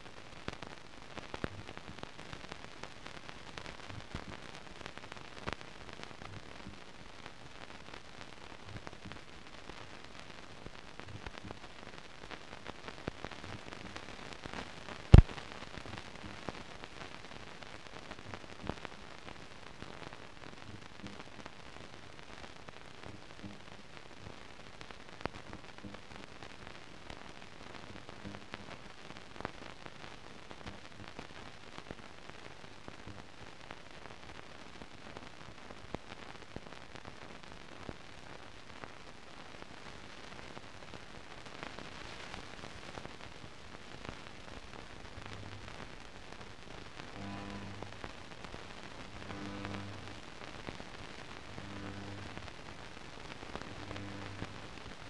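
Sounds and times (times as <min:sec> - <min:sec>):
clicks and crackle: 0:00.0 - 0:55.0
film surface hiss: 0:00.0 - 0:55.0
sharp pop: 0:15.1 - 0:15.4.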